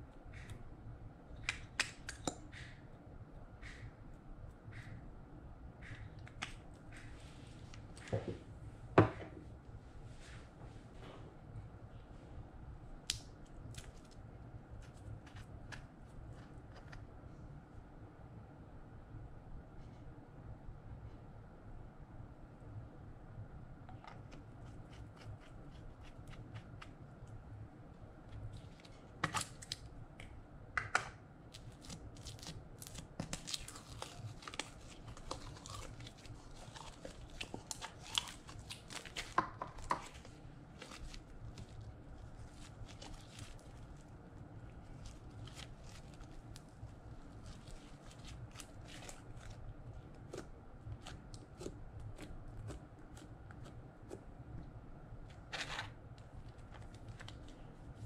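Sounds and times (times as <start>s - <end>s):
hands kneading slime: 5.8s - 8.6s, 12.9s - 17.2s, 23.9s - 58.0s.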